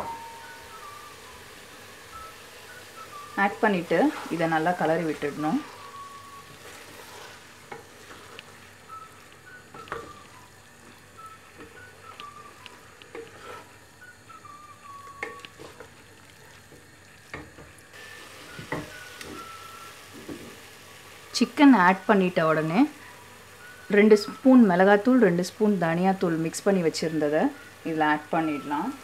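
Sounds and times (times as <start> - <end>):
chicken sizzling in hot oil: 0.0 - 29.0
spatula scraping and knocking pot: 13.1 - 13.8.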